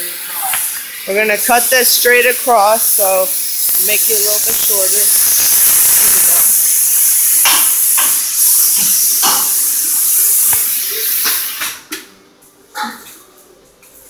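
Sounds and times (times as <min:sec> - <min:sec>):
tool cutting through exhaust pipe: 0:02.8 - 0:11.8.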